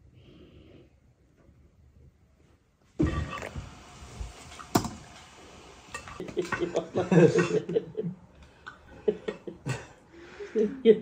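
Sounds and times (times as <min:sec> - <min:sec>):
dishes and utensils clinking: 0:03.0 - 0:03.6, 0:04.4 - 0:07.8.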